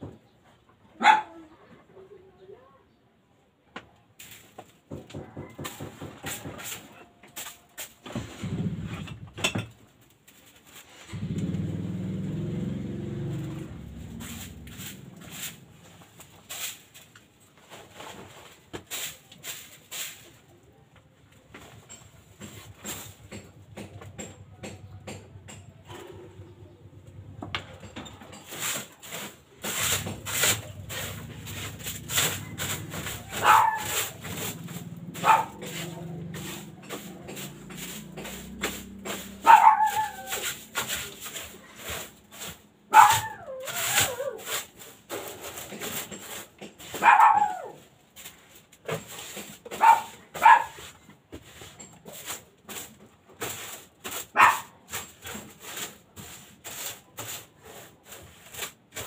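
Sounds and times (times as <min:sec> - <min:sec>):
scraping and knocking clicks: 0:21.0 - 0:41.6
animal whining and yelping: 0:39.4 - 0:40.4, 0:42.9 - 0:44.5.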